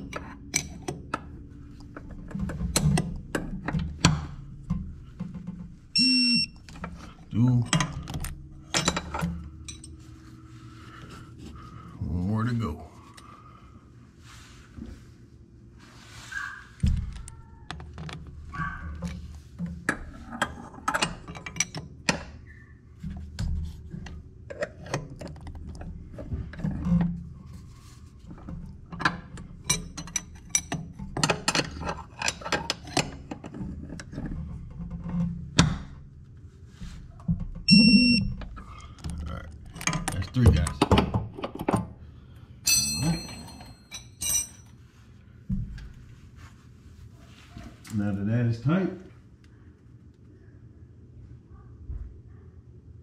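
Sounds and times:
short metallic ring: 0:42.6 - 0:44.6.

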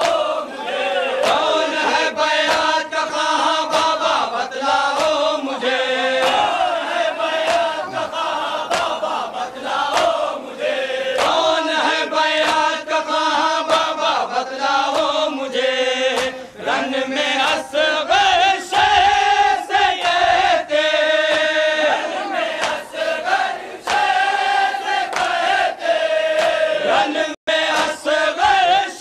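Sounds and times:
men chanting in chorus: 0:00.0 - 0:29.0
sharp slap-like strokes: 0:08.7 - 0:09.1, 0:11.1 - 0:11.4, 0:22.6 - 0:23.0, 0:23.8 - 0:24.2, 0:26.3 - 0:26.7, 0:27.7 - 0:28.1.

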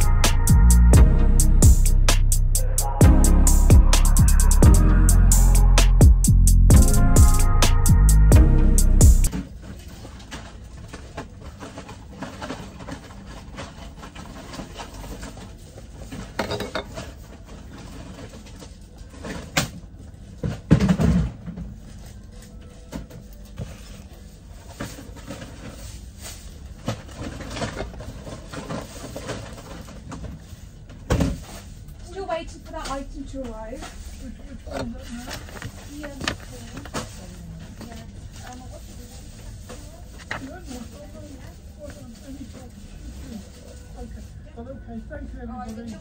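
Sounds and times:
objects being handled: 0:09.2 - 0:20.9, 0:32.7 - 0:43.8.

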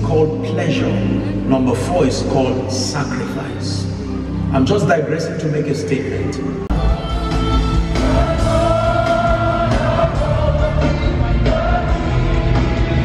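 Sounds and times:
heavy bass: 0:06.4 - 0:13.0.

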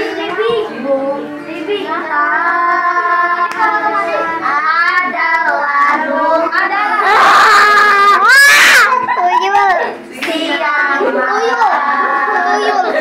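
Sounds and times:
girls singing together: 0:00.0 - 0:13.0
loud high-pitched shout: 0:07.0 - 0:09.9.

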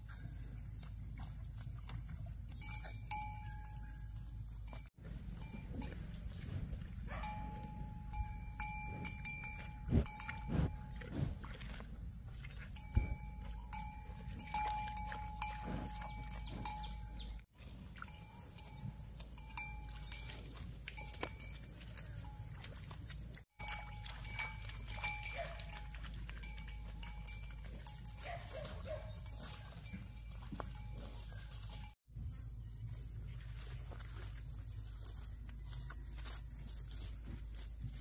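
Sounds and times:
cattle tearing and chewing grass: 0:00.0 - 0:38.0
cow bell clinking: 0:02.6 - 0:11.4, 0:12.5 - 0:17.4, 0:18.0 - 0:22.9, 0:23.6 - 0:32.0.

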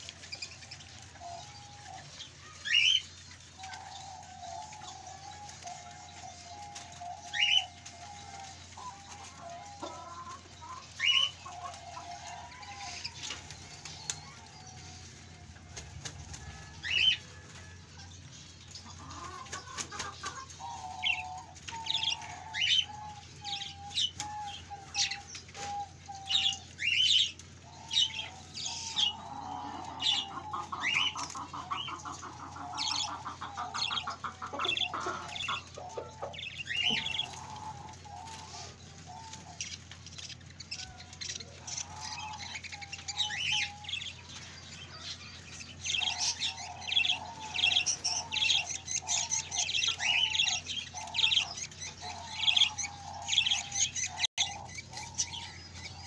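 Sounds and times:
small birds chirping: 0:00.0 - 0:56.0
lower wavering bird calls: 0:16.4 - 0:56.0.

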